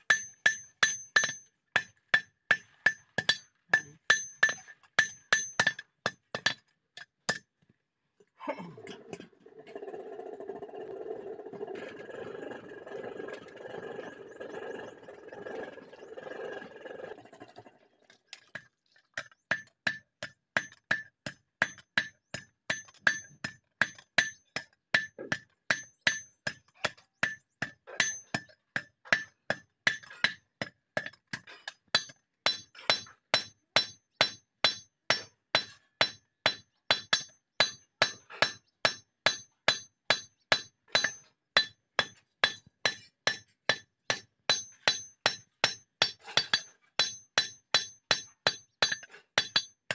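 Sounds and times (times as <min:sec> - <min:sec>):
hammer striking metal on anvil: 0:00.0 - 0:07.5, 0:35.6 - 0:49.9
steady whirring: 0:09.4 - 0:17.8.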